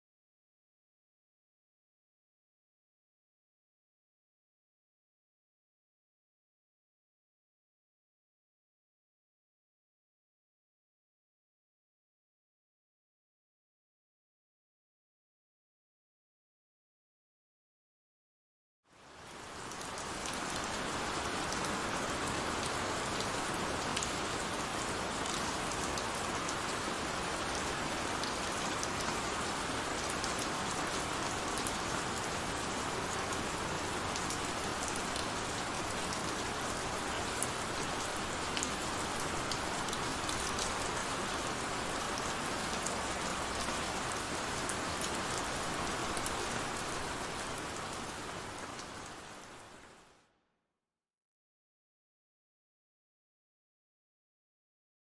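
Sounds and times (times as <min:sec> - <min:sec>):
heavy rain falling: 0:19.0 - 0:50.0.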